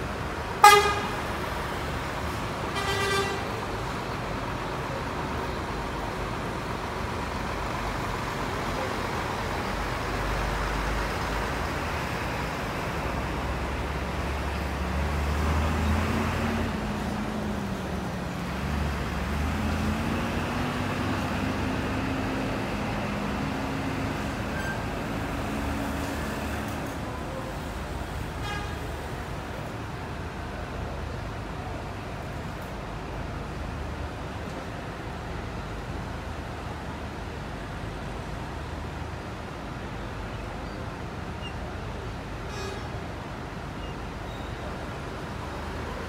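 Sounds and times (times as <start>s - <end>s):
bus diesel engine accelerating: 0.0s - 46.0s
bus horn blasts: 0.6s - 1.3s, 2.7s - 3.6s, 24.5s - 24.9s, 28.4s - 29.0s, 42.5s - 43.0s.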